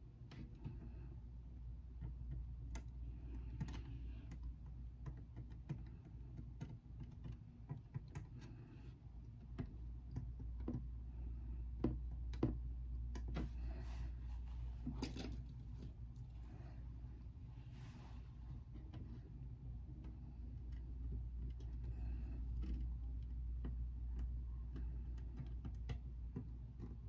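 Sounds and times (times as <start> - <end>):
low steady hum: 0.0 - 27.0
soft brushing rubs: 13.4 - 14.9, 15.9 - 19.3.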